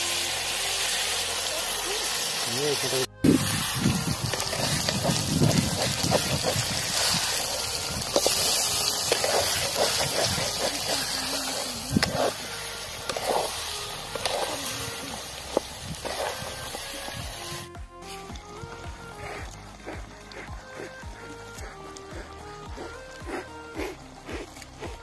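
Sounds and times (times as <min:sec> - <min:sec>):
curry sizzling and bubbling: 0:00.0 - 0:25.0
metal ladle scraping pot: 0:03.2 - 0:17.5.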